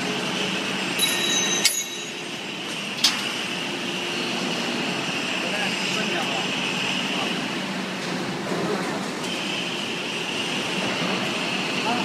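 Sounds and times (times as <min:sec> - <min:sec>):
high metallic ringing: 0:00.9 - 0:02.6
sharp metallic clinks: 0:01.0 - 0:02.4.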